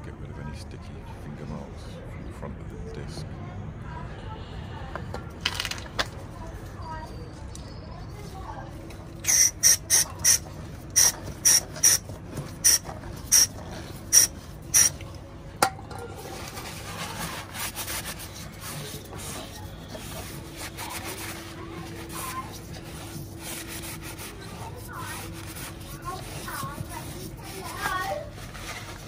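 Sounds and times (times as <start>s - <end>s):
aerosol spray squirts: 9.2s - 13.5s, 14.1s - 15.0s
cloth rubbing on metal disc: 9.3s - 15.0s, 16.0s - 29.0s.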